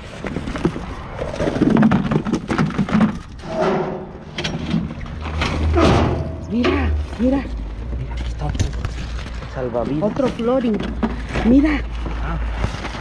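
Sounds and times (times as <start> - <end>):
trash rustling: 0.0 - 13.0
low rumble: 3.2 - 9.8.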